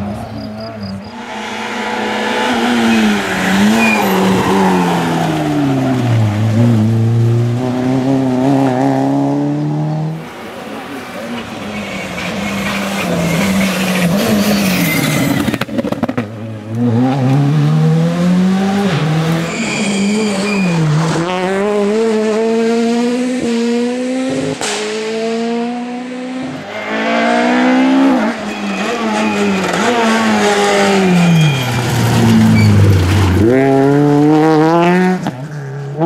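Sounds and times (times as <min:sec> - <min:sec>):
rally car engines revving: 0:00.0 - 0:36.0
high squeal: 0:00.4 - 0:05.7, 0:11.6 - 0:15.6, 0:19.4 - 0:20.9, 0:27.7 - 0:33.1.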